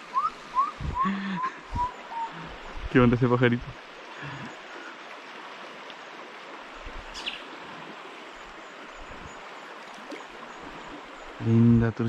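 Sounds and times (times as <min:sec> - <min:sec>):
river water rushing: 0:00.0 - 0:11.7
small bird chirp: 0:07.1 - 0:07.5.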